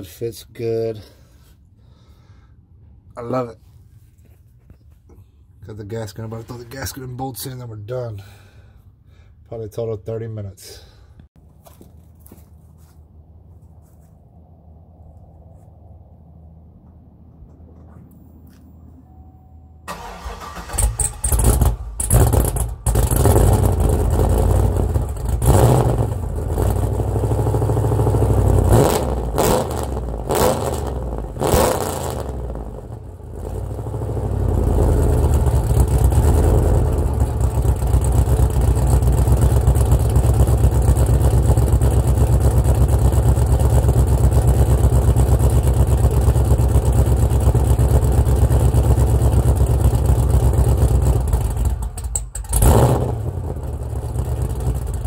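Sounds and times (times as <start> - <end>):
vee eight engine revving and idling: 19.9 - 55.0.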